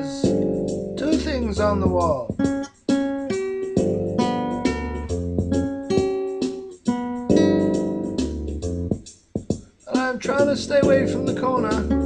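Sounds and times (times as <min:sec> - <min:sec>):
acoustic guitar strumming: 0:00.0 - 0:12.0.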